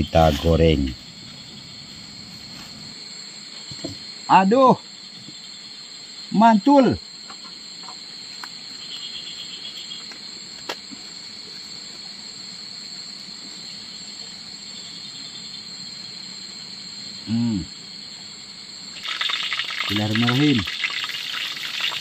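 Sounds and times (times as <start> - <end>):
night insects droning: 0.0 - 22.0
man's brief vocal sound: 17.3 - 17.7
faint hiss: 18.9 - 22.0.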